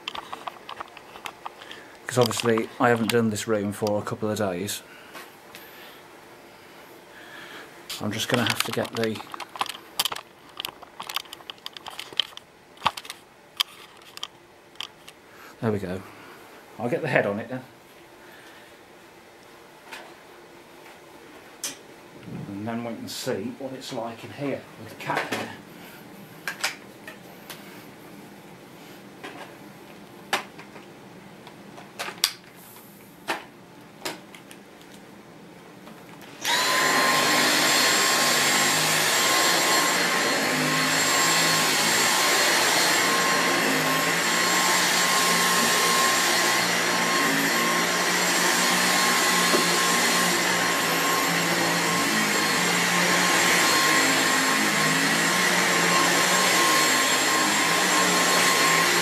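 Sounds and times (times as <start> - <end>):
vacuum cleaner motor whine: 36.3 - 59.0.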